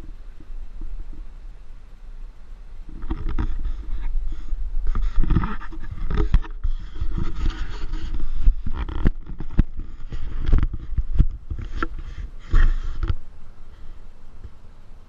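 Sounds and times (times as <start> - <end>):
wind rumble on microphone: 0.0 - 15.0
camera pole knocks and scrapes: 4.9 - 13.2.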